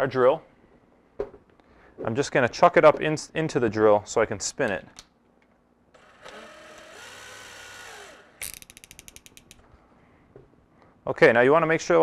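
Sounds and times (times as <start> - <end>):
cordless drill running: 6.0 - 8.5
drill chuck ratcheting clicks: 6.0 - 9.6.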